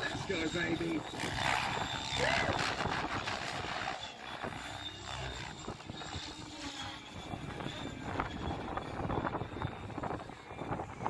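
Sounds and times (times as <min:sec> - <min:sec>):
model helicopter high whine: 0:00.0 - 0:11.0.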